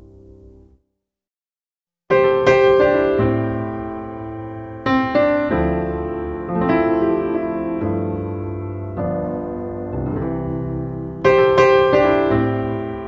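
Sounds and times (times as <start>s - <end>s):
soft piano chords: 2.1s - 13.0s.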